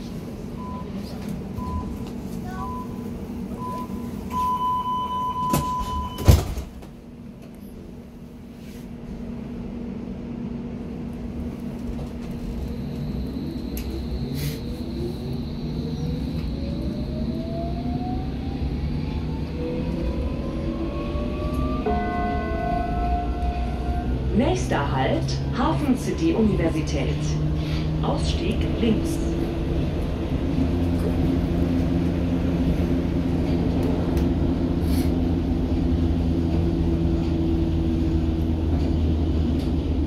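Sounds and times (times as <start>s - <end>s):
door closing warning tone: 3.6s - 6.6s
sliding doors shutting with thud: 5.4s - 7.0s
train running rumble: 5.4s - 40.0s
train traction drive whining: 9.5s - 40.0s.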